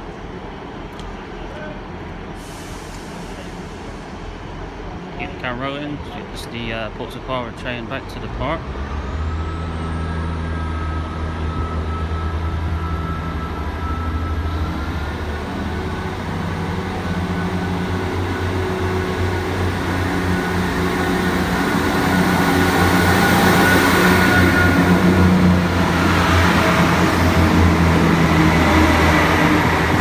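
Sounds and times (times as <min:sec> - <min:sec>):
train diesel engines revving: 0:00.1 - 0:30.0.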